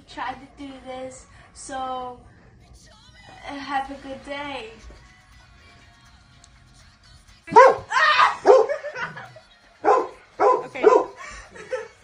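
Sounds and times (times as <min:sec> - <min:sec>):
dog barking: 0:07.5 - 0:08.9, 0:09.8 - 0:11.2.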